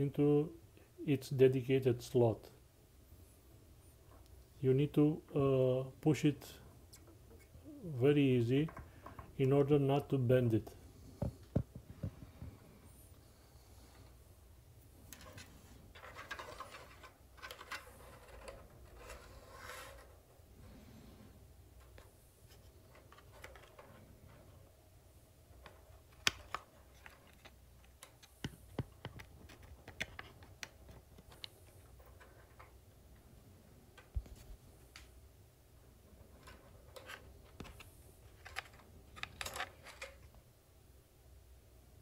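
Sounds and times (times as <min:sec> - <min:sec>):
wires rustling: 0:10.6 - 0:40.5
small plastic clicks: 0:25.6 - 0:31.6.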